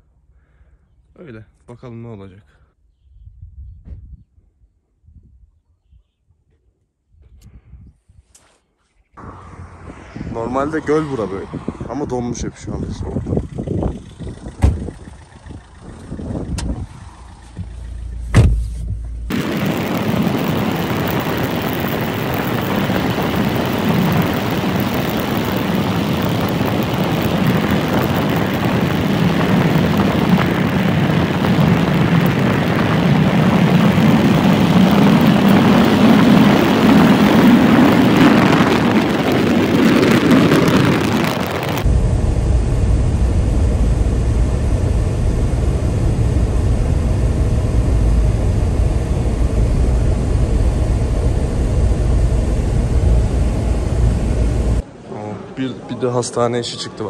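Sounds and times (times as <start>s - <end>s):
wind buffeting microphone: 9.2s - 17.8s, 19.3s - 54.8s
vehicle road and engine drone: 9.2s - 55.0s.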